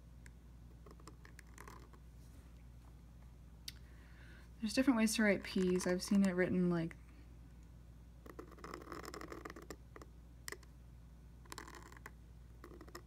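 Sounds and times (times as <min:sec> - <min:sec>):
pen nib scratching paper: 0:00.7 - 0:02.0, 0:05.2 - 0:06.4, 0:08.2 - 0:10.6, 0:11.4 - 0:13.0.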